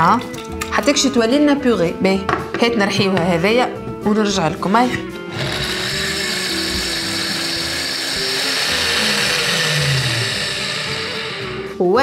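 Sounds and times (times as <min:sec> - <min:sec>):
background music: 0:00.0 - 0:12.0
blender running: 0:05.2 - 0:11.8.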